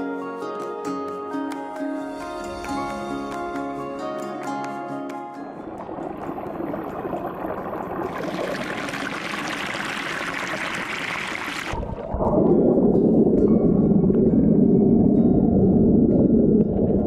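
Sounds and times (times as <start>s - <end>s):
underwater bubbling churn: 5.6s - 17.0s.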